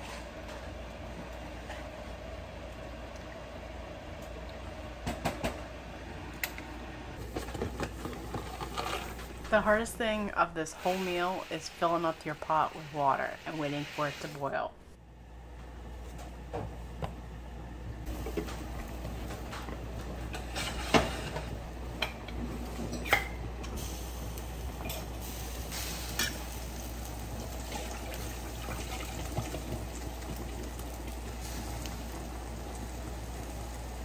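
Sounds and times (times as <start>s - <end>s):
pot of water boiling: 0.0s - 14.7s, 17.8s - 34.0s.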